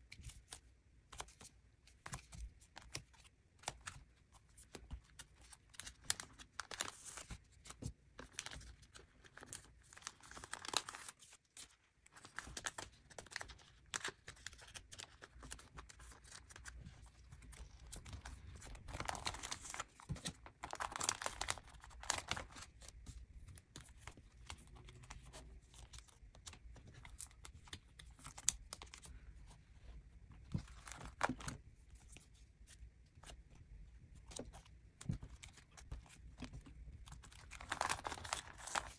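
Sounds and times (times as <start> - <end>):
plastic sleeves crinkling: 12.2 - 29.2, 34.3 - 38.9.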